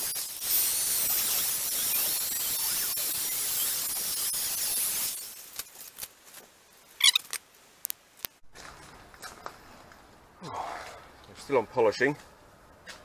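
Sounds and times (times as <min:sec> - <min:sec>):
short high squeak: 0:07.0 - 0:07.4.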